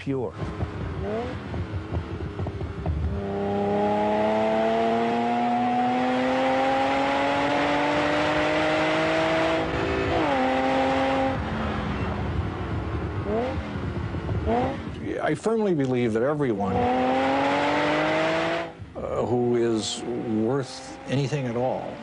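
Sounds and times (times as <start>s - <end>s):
sports car engine revving: 0.3s - 22.0s.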